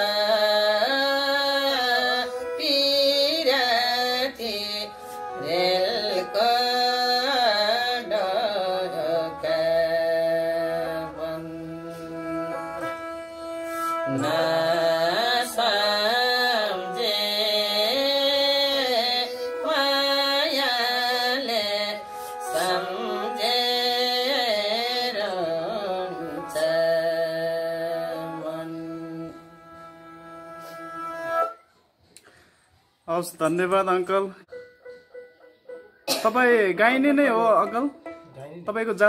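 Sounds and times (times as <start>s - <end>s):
person singing: 0.0s - 31.2s
bowed fiddle playing: 1.6s - 24.7s, 25.9s - 31.6s, 37.2s - 38.7s.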